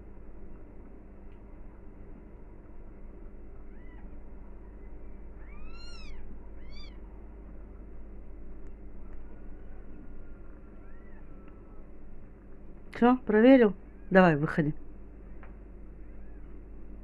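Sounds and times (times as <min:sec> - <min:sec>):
kittens mewing: 0:03.7 - 0:07.0, 0:10.3 - 0:12.0.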